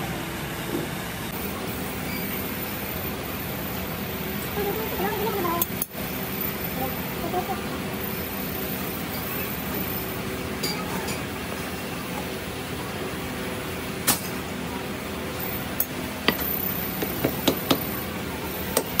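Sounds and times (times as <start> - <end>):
steady workshop hum: 0.0 - 19.0.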